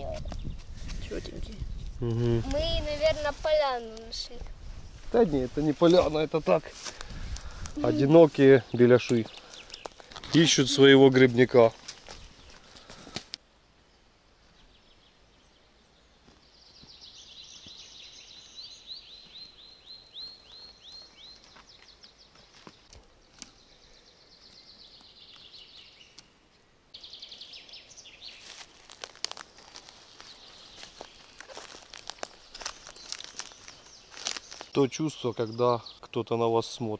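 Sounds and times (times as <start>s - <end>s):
songbird singing: 0.0s - 36.9s
footsteps on dry twigs: 2.5s - 7.8s, 9.1s - 13.4s, 20.5s - 23.6s, 28.2s - 34.8s.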